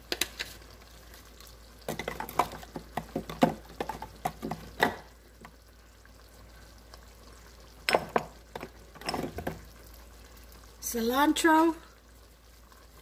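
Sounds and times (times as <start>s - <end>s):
kitchen items clicking and knocking: 1.9s - 5.0s, 7.9s - 9.6s.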